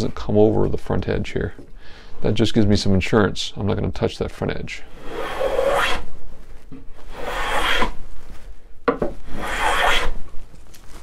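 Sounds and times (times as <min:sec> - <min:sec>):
hand plane shaving wood: 0:05.0 - 0:06.1, 0:07.1 - 0:08.0, 0:09.2 - 0:10.2.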